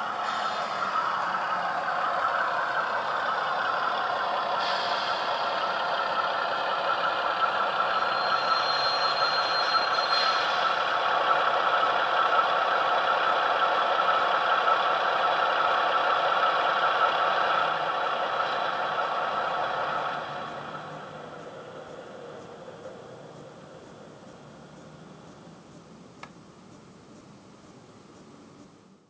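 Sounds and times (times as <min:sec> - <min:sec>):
model diesel engine sound: 0:00.0 - 0:26.2
thin high squeal: 0:07.9 - 0:10.9.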